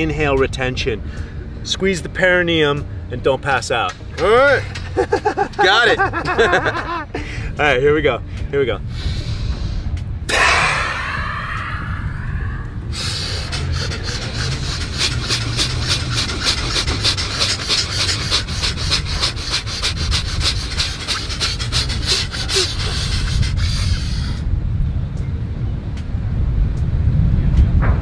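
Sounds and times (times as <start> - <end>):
rapid forceful breathing: 8.3 - 12.1, 12.7 - 24.5.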